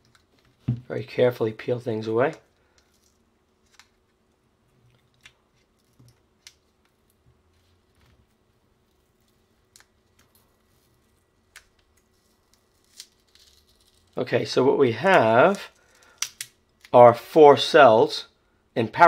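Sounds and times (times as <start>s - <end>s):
plastic wrap crinkling: 7.8s - 14.2s.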